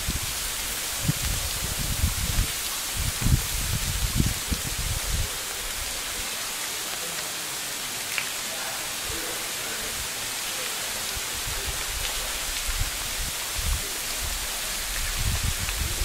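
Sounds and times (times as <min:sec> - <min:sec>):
wind buffeting microphone: 0:00.0 - 0:05.9, 0:11.4 - 0:16.0
steady outdoor hiss: 0:00.0 - 0:16.0.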